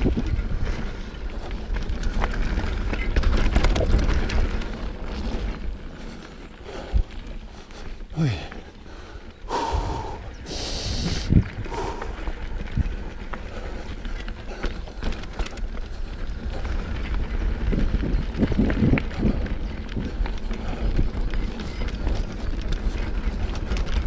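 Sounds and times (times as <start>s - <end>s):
bike rattling and clicking: 0.0s - 24.0s
tyres crunching over gravel: 0.0s - 24.0s
wind buffeting on microphone: 0.0s - 24.0s.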